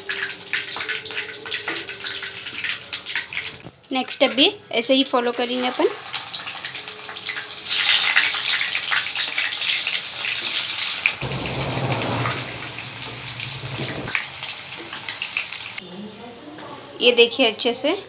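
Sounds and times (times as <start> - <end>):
hot oil sizzling and crackling: 0.0 - 15.8
low hum: 11.2 - 14.2.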